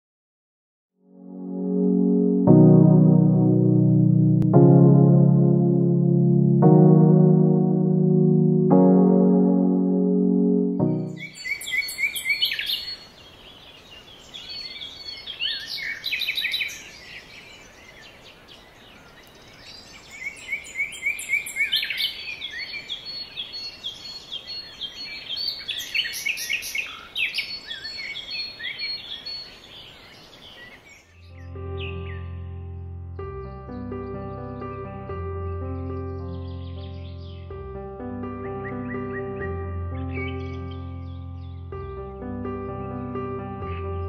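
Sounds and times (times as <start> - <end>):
birds chirping and trilling: 10.8 - 37.7, 38.4 - 44.0.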